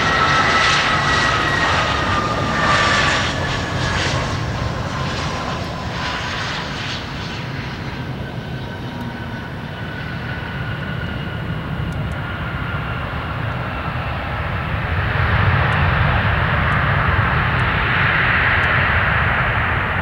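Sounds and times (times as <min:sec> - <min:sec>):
jet engine reverse thrust roar: 0:00.0 - 0:20.0
jet engine whine: 0:00.0 - 0:20.0.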